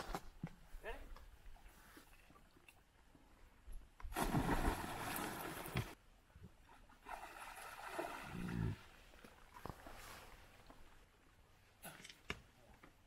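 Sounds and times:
water splashing and churning: 4.1s - 6.0s, 6.8s - 10.6s.

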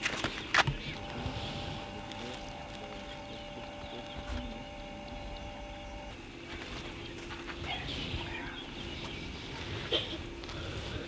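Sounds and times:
faint bird calls: 0.2s - 6.2s, 6.8s - 11.0s
low cooing notes: 0.9s - 6.1s.

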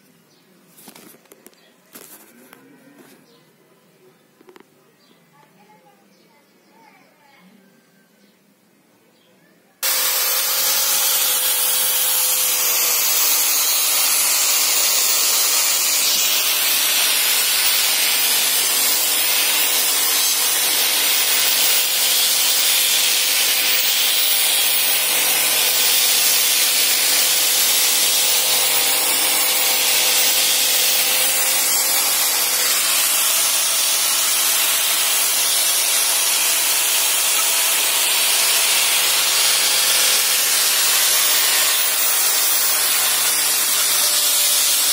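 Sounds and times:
angle grinder sanding wood: 9.8s - 44.9s.

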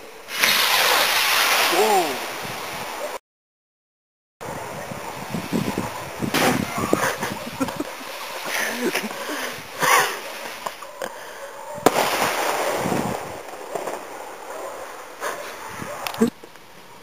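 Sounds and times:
rocket rushing hiss: 0.2s - 3.0s, 5.3s - 6.9s, 11.8s - 14.6s
sharp crack: 0.3s - 2.4s, 6.2s - 7.1s, 11.8s - 16.2s.

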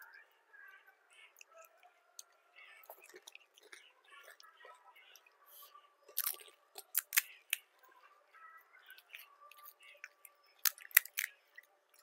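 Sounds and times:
chewing: 1.2s - 12.0s
crisp shells cracking: 6.1s - 7.6s, 9.6s - 11.4s.

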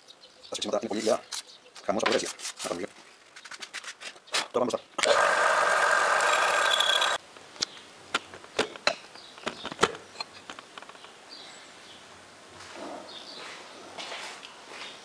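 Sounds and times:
lathe cutting metal: 5.0s - 7.2s.

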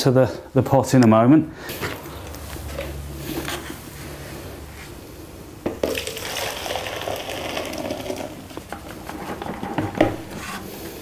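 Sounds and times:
water splashing into plastic bucket: 5.8s - 8.5s.

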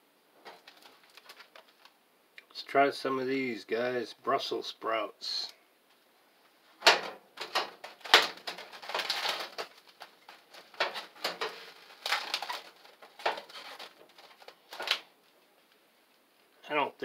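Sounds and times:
plastic wrap crinkling and tearing: 0.4s - 2.0s, 6.8s - 15.2s.

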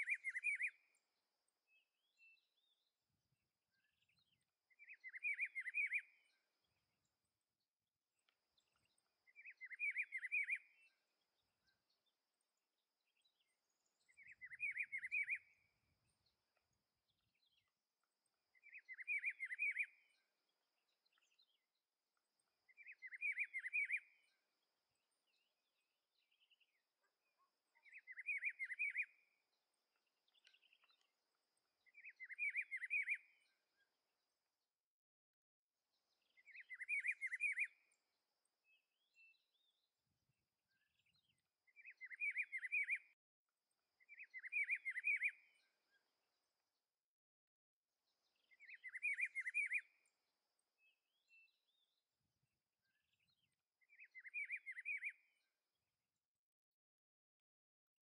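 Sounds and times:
bird singing warbled phrase: 0.0s - 1.0s, 18.6s - 20.1s, 36.2s - 37.9s, 44.1s - 45.6s, 48.3s - 50.1s.

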